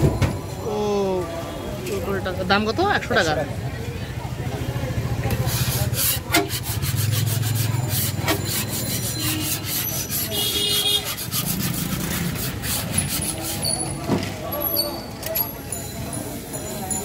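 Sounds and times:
metal scraper on griddle: 0:05.3 - 0:13.9.

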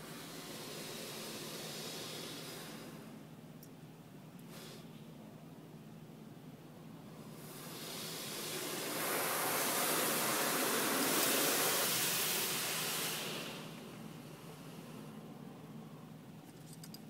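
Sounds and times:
car wash water spray hiss: 0:00.0 - 0:03.3, 0:04.4 - 0:04.9, 0:07.1 - 0:15.3.

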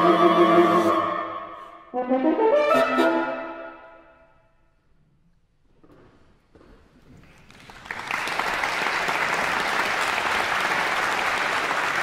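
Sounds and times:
audience applauding: 0:07.2 - 0:12.0.

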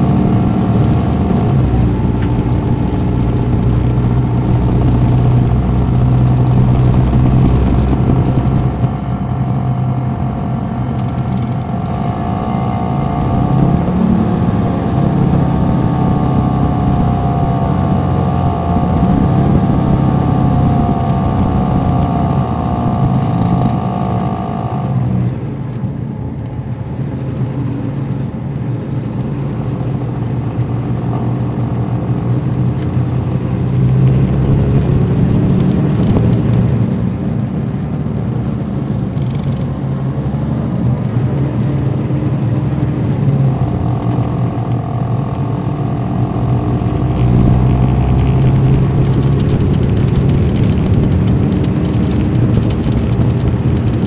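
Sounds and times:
high whine: 0:00.0 - 0:25.4, 0:42.0 - 0:54.0
bus diesel engine: 0:00.0 - 0:54.0.

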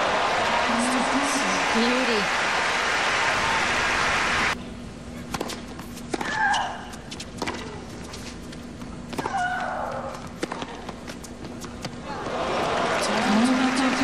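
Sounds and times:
crowd applause: 0:00.0 - 0:04.6, 0:12.1 - 0:14.0
tennis ball bouncing: 0:05.3 - 0:06.4, 0:07.1 - 0:07.8, 0:09.1 - 0:12.0.

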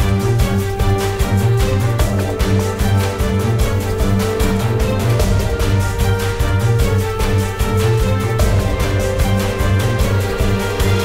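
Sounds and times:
instrumental music with bass: 0:00.0 - 0:11.0.

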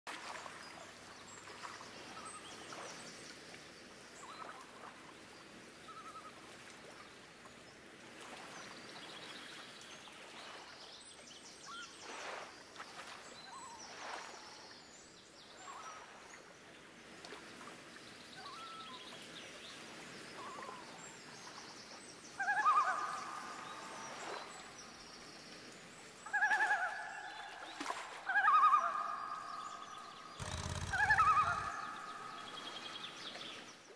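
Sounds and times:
birds chirping: 0:28.6 - 0:33.9
loud pitched animal calls: 0:30.4 - 0:32.8.

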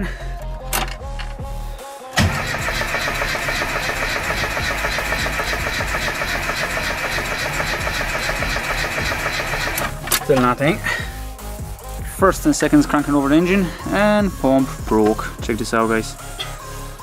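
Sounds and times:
car engine cranking on starter: 0:02.2 - 0:10.3.

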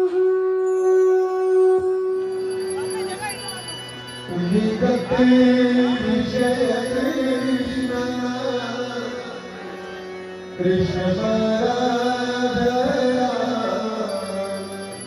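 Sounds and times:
devotional music: 0:00.0 - 0:15.0.

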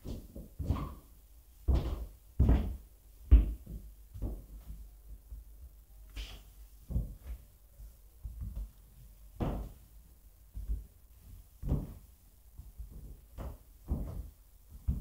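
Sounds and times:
hollow thuds and knocks: 0:09.4 - 0:09.8, 0:11.6 - 0:15.0.

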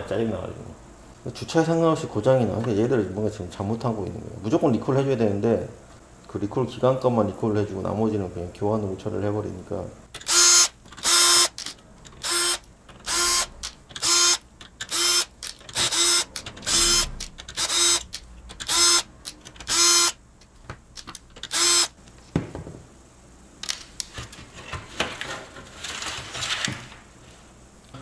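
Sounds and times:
cordless drill spinning: 0:10.3 - 0:20.2, 0:21.4 - 0:21.9.

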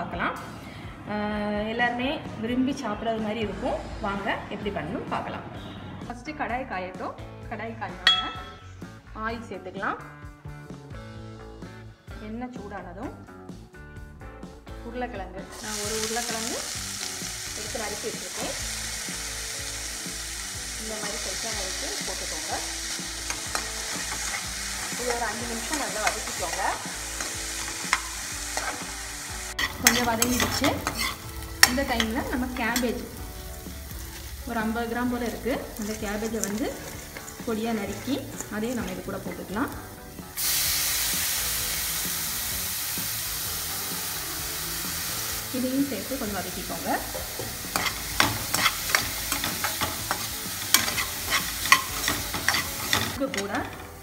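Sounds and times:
potatoes sizzling in oil: 0:15.5 - 0:54.0
steel spoon scraping a pan: 0:22.8 - 0:34.4, 0:35.8 - 0:39.3, 0:47.2 - 0:54.0.

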